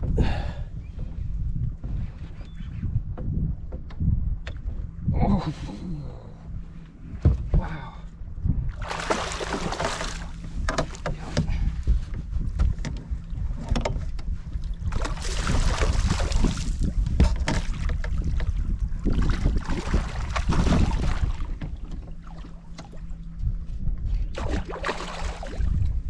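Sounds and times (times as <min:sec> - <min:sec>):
wind on microphone: 0:00.0 - 0:26.0
fish thrashing and splashing: 0:08.8 - 0:10.4, 0:14.9 - 0:16.8, 0:24.4 - 0:25.6.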